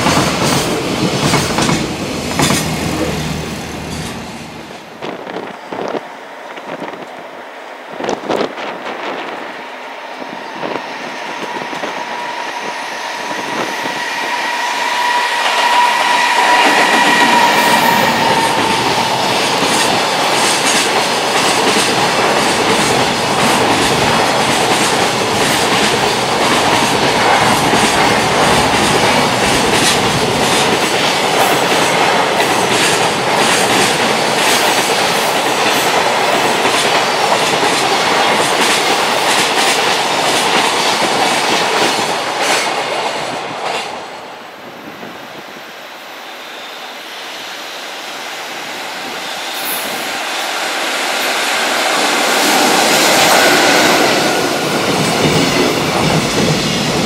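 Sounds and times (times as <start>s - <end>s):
train wheels rumbling: 0.0s - 45.3s, 48.6s - 57.0s
high steady tone: 10.4s - 20.3s.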